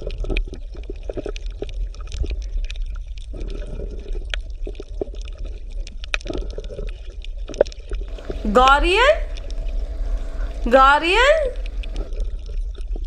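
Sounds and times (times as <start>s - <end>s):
low rumble: 8.1s - 12.1s.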